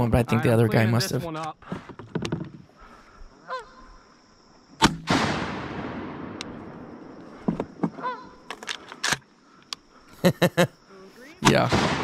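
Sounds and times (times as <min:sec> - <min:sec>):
goose honking: 0:03.4 - 0:03.8, 0:08.0 - 0:08.4
shotgun shot: 0:04.8 - 0:06.5, 0:11.4 - 0:12.0.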